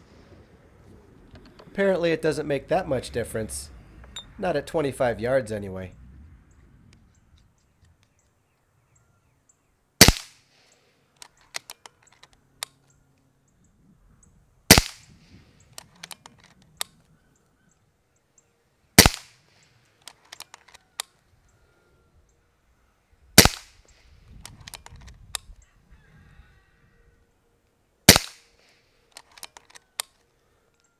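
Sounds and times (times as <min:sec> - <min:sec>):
air rifle shots: 0:10.0 - 0:10.5, 0:14.7 - 0:15.4, 0:19.0 - 0:19.5, 0:23.4 - 0:23.9, 0:28.1 - 0:28.7
rifle action clicks: 0:11.2 - 0:13.0, 0:15.6 - 0:17.0, 0:19.0 - 0:19.4, 0:20.0 - 0:21.2, 0:23.4 - 0:25.6, 0:28.1 - 0:30.9.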